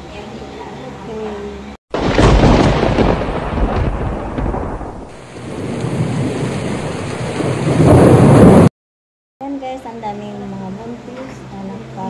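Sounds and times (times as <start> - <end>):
heavy rain: 1.9 - 8.7
rolling thunder: 1.9 - 8.7.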